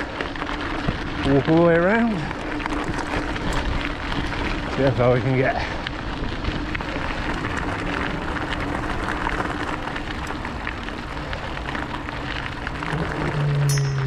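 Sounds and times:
steady rushing noise: 0.0 - 14.0
low engine drone: 5.7 - 14.0.

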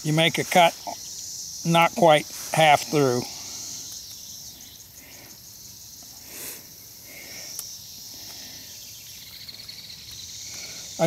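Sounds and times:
insects chirring: 0.0 - 11.0
soft rustle: 2.2 - 3.1.

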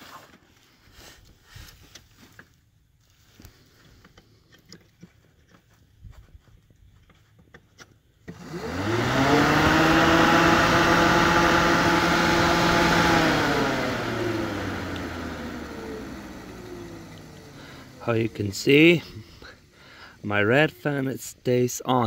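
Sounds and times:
electric cooling fan running: 8.3 - 20.3.

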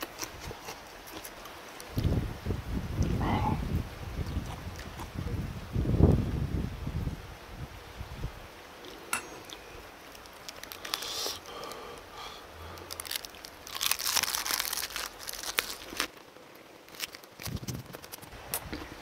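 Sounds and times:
crunching cabbage leaf being chewed: 0.0 - 2.2, 4.2 - 5.3, 10.0 - 11.8, 12.7 - 19.0.

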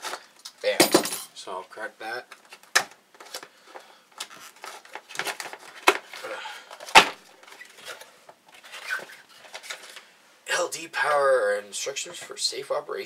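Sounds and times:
cardboard rustling and scraping: 6.8 - 10.0.

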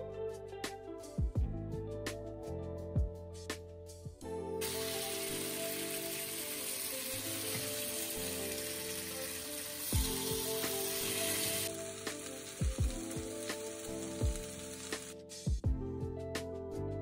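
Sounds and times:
background music with low beats: 0.0 - 4.6, 10.0 - 10.8, 12.6 - 13.6, 14.2 - 14.5, 15.2 - 17.0
potatoes sizzling in oil: 4.6 - 15.3.

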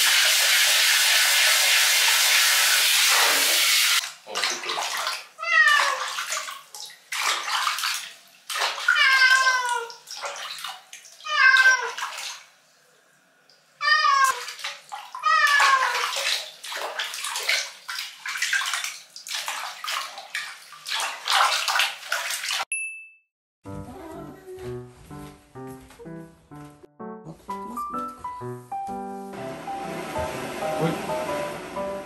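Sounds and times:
water sloshing in a plastic tub: 4.0 - 12.6, 14.1 - 22.7
cat meowing: 5.4 - 6.1, 8.9 - 9.9, 11.2 - 12.0, 13.8 - 14.4, 15.2 - 16.1.

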